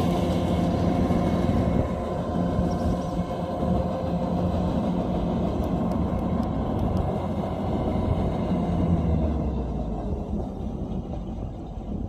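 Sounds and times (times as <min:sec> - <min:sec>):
combine harvester running: 0:00.0 - 0:12.0.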